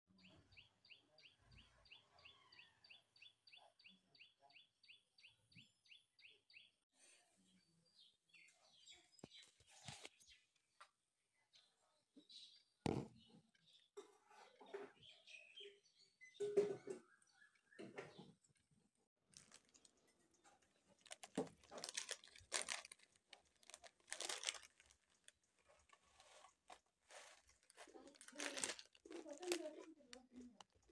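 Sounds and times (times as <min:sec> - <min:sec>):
plastic snack packet crinkling: 0:19.3 - 0:30.8.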